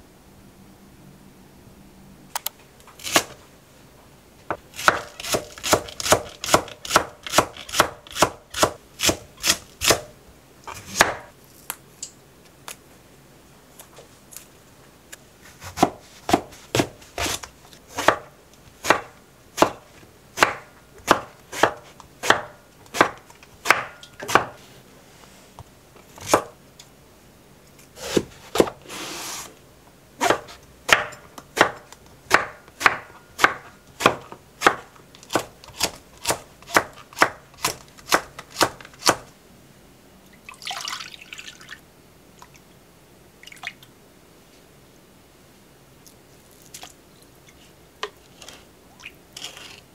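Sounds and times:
knife chopping on wooden board: 4.8s - 10.1s, 10.8s - 11.3s, 15.6s - 24.6s, 26.2s - 26.5s, 30.2s - 39.3s.

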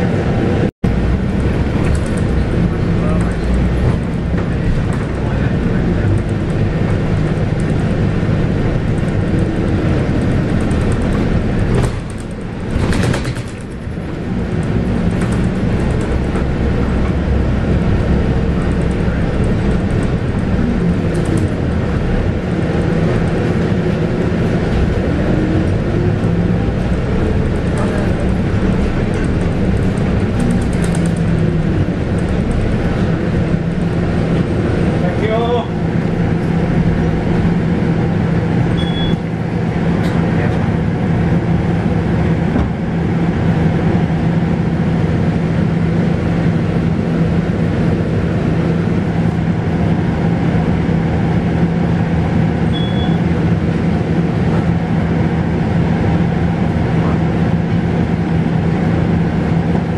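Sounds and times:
bus diesel engine running: 0.0s - 59.9s.

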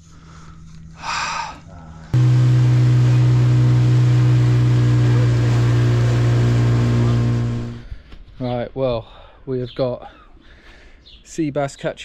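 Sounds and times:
engine running steadily: 2.2s - 7.9s.

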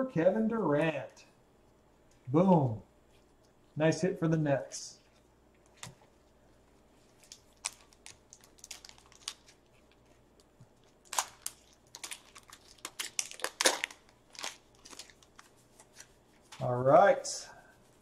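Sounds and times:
wrapper crinkling: 7.0s - 16.7s.

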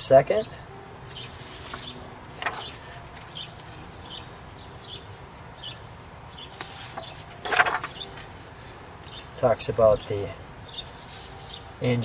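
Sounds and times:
paper pages turning: 1.1s - 4.1s, 6.4s - 8.8s, 11.0s - 11.5s
small bird chirping: 10.7s - 11.6s.

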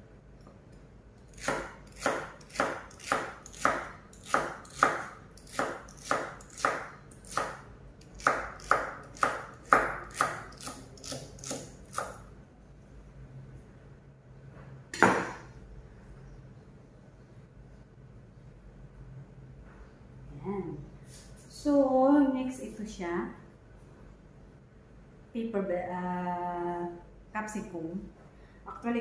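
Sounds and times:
knife chopping on wooden board: 1.4s - 7.6s, 8.2s - 12.2s, 15.0s - 15.4s.

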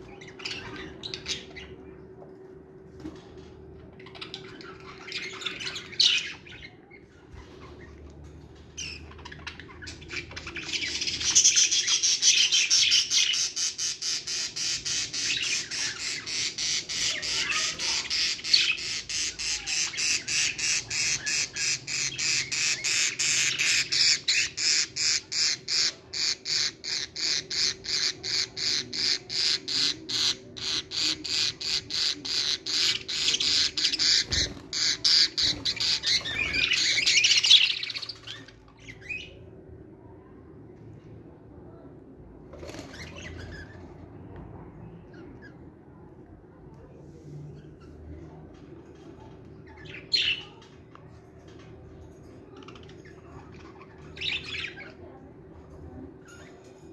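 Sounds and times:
budgerigars squawking and chattering: 8.8s - 39.4s.

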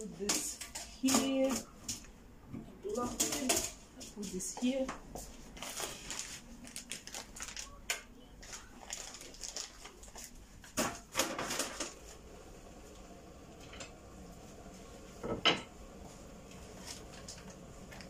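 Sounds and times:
kitchen items knocking and clicking: 0.0s - 5.0s, 10.6s - 12.0s.

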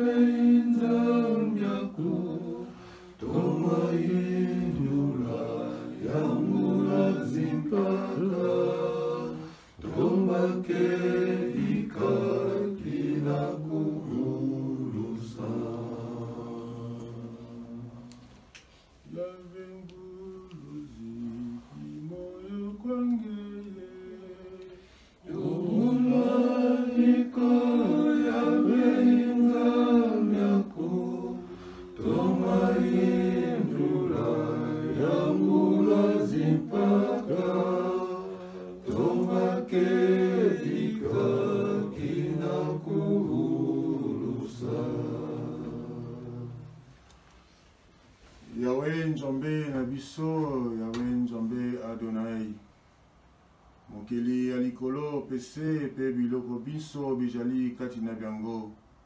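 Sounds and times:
people singing a hymn: 0.0s - 18.4s, 19.1s - 47.0s.

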